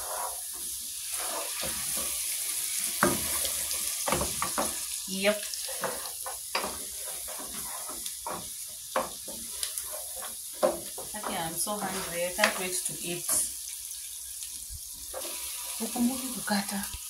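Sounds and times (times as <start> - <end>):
food sizzling in hot oil: 0.0 - 17.0
spoon scraping and knocking pot: 5.6 - 13.5.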